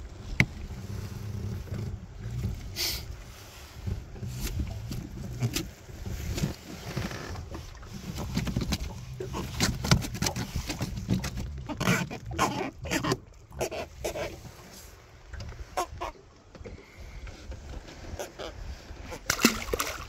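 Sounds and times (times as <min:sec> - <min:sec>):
catfish croaking grunts: 0:11.7 - 0:14.4.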